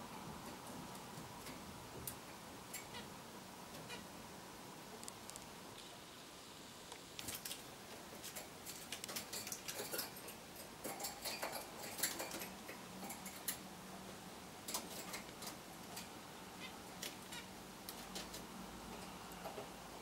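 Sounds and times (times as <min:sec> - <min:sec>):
small birds chirping: 0:14.7 - 0:18.4.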